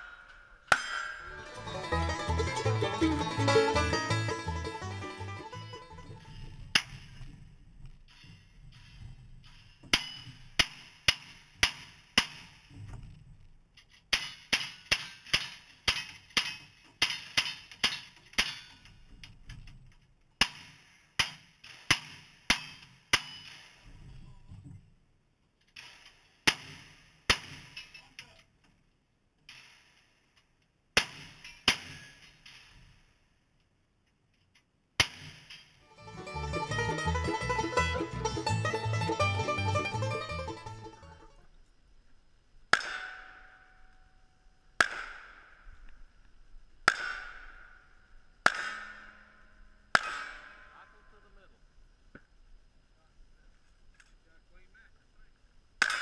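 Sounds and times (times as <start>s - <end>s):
steel targets ringing: 0.0s - 1.7s.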